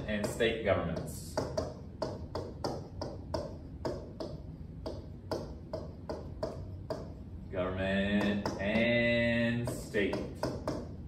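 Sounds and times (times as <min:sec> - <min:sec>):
low room hum: 0:00.0 - 0:11.0
stylus tapping on glass screen: 0:01.0 - 0:07.2, 0:08.2 - 0:09.0, 0:09.7 - 0:11.0.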